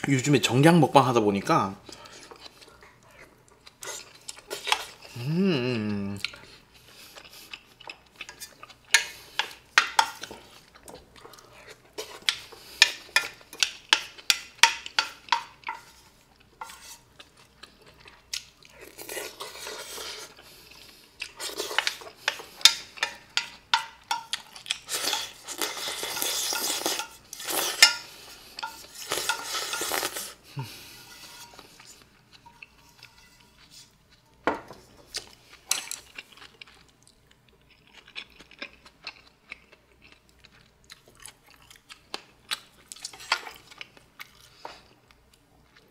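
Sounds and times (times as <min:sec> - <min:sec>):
spoon scraping metal pan: 0:16.6 - 0:17.0, 0:24.1 - 0:34.0.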